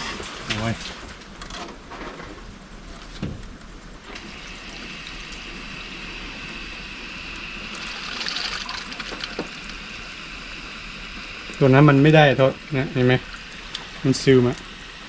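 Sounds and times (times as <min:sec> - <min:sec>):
tap water running: 0:04.1 - 0:06.4, 0:07.4 - 0:14.8.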